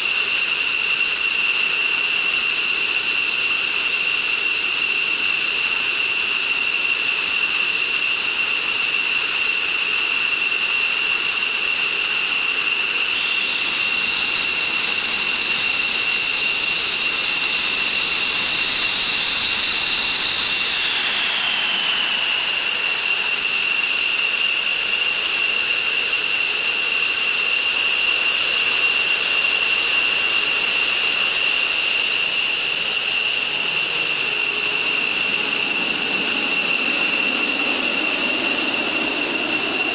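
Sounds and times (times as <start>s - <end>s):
jet engines whining: 0.1s - 39.9s.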